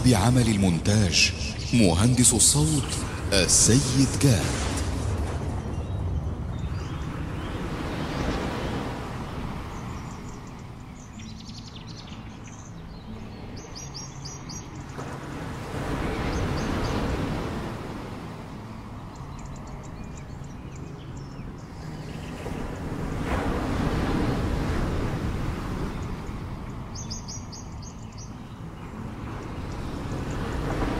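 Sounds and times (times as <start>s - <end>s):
small waves washing onto beach: 0.0s - 11.2s, 12.7s - 30.9s
birds chirping: 0.0s - 30.9s.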